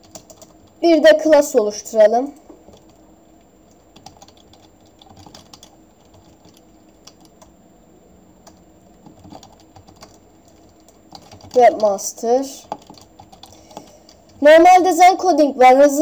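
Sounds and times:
keyboard typing: 0.0s - 0.8s, 2.7s - 3.0s, 3.7s - 7.5s, 8.4s - 14.4s.

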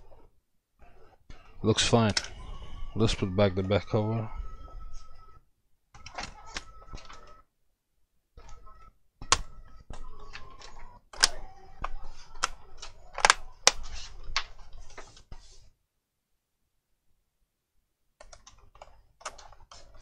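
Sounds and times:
plastic clips clicking and snapping: 1.9s - 2.4s, 9.2s - 14.5s.

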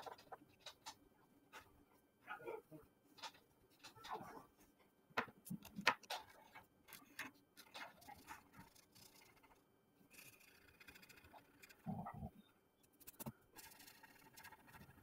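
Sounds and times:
crayon scratching on paper: 7.6s - 12.4s, 13.0s - 15.0s.

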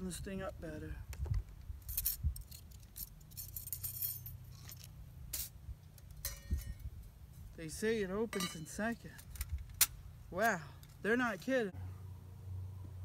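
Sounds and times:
ringing metal clink: 6.2s - 6.8s, 8.3s - 8.8s.

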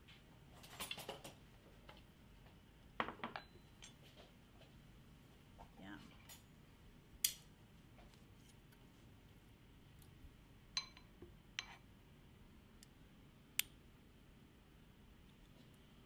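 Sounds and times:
spoons clinking against bowls: 10.8s - 11.8s.

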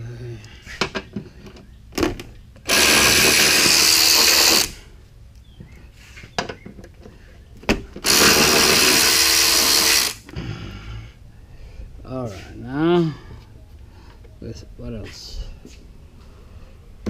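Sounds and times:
power tool whirring: 2.6s - 4.8s, 8.0s - 10.3s.

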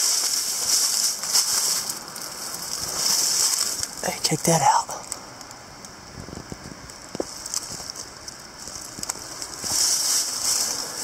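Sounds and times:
footsteps on dry leaves: 0.0s - 4.0s, 7.2s - 11.0s
steady hiss: 0.0s - 11.0s.

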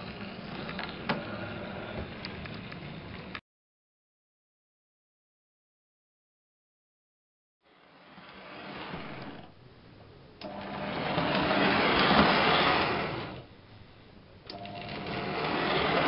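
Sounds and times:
toy train motor whirring: 10.4s - 13.5s, 14.8s - 16.0s.

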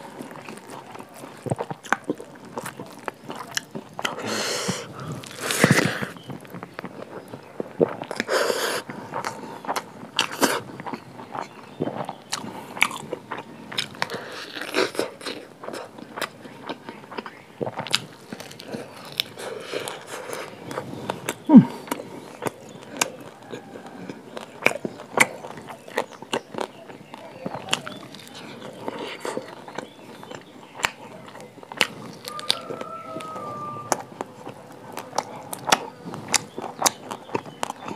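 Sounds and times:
person chewing and crunching: 0.0s - 37.9s.

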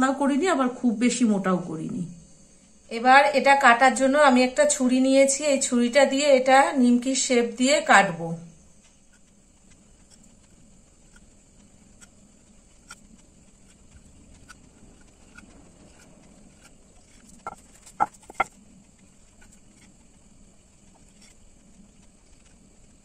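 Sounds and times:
knife tapping and scraping board: 16.6s - 18.6s.

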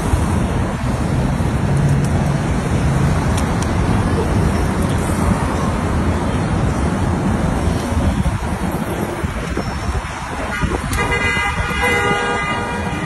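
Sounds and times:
rumble of traffic: 0.0s - 13.0s.

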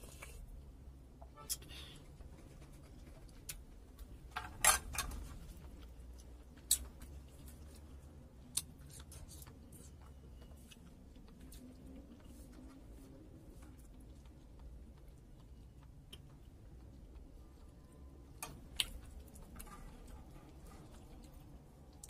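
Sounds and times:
wet chewing: 5.6s - 22.0s.

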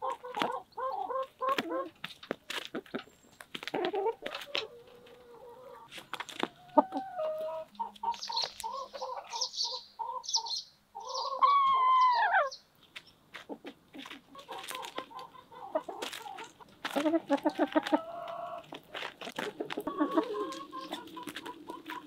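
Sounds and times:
beaks pecking at ground: 0.0s - 22.0s
hens clucking: 0.0s - 22.0s
loud drawn-out hen call: 11.0s - 12.6s.

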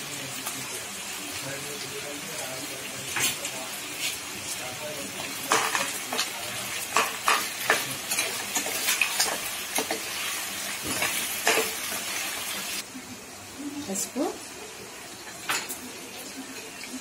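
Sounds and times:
meat sizzling in hot oil: 0.0s - 17.0s
spoon scraping and knocking pan: 5.2s - 12.2s.

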